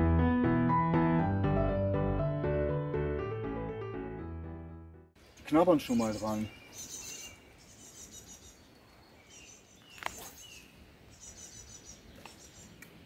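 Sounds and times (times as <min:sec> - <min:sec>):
lakeside ambience: 0:05.2 - 0:13.0
songbirds chirping: 0:05.2 - 0:13.0.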